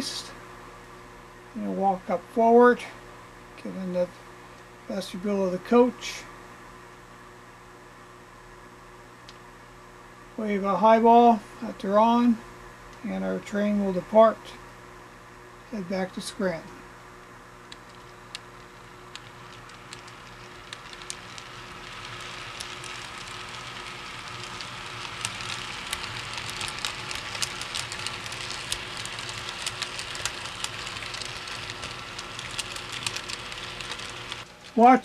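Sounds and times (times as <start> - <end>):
model train wheels clicking on track: 17.7 - 35.0.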